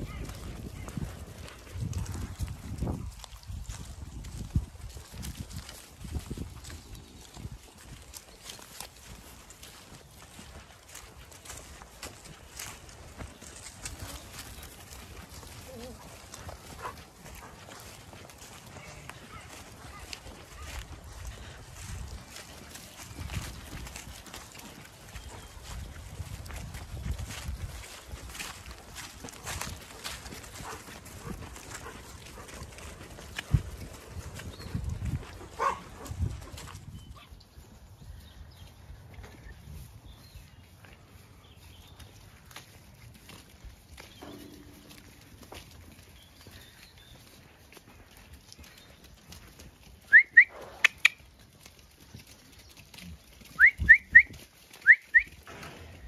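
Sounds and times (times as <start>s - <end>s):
footsteps through grass: 0.0s - 38.0s
person whistling short rising whistles: 50.1s - 50.6s, 53.6s - 55.3s.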